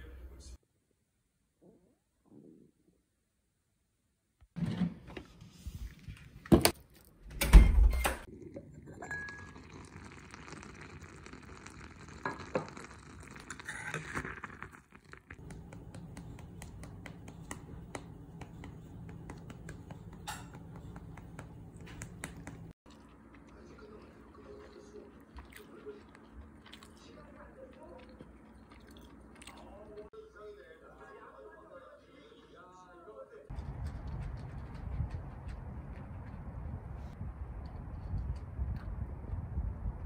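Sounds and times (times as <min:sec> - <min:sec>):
spoon stirring in ceramic pot: 0:12.1 - 0:22.8.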